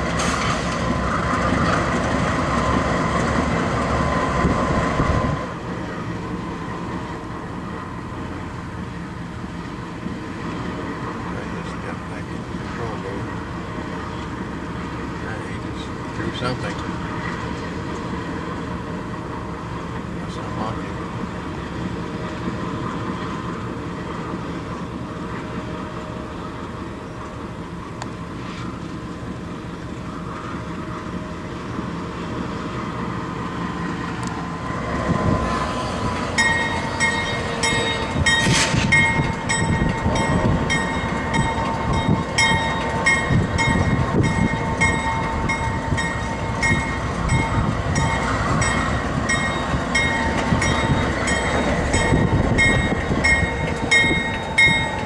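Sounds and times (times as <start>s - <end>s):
diesel locomotive rumbling: 0.0s - 55.0s
high ringing: 36.4s - 55.0s.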